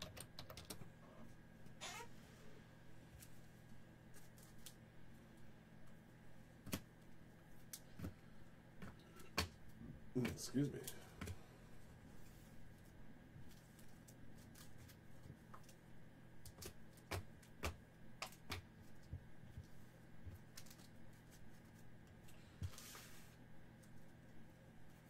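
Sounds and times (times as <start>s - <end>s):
cards clicking and tapping on table: 16.5s - 19.6s.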